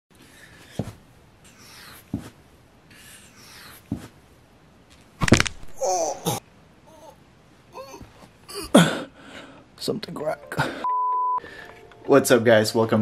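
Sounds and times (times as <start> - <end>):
bare feet thudding on carpet: 2.1 - 2.4
short pained cry: 5.7 - 9.1
person breathing: 8.8 - 9.7, 10.6 - 11.9.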